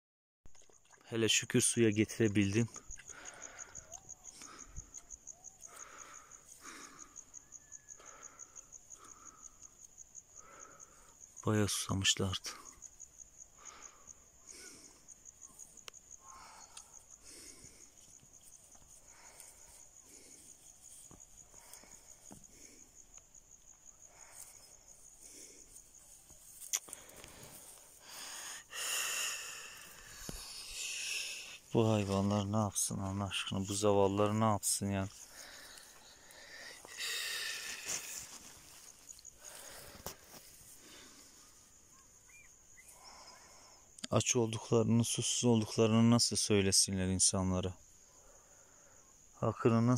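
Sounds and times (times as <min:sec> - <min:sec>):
puppies lapping water: 0:00.5 - 0:01.1
insect chirping: 0:00.5 - 0:49.9.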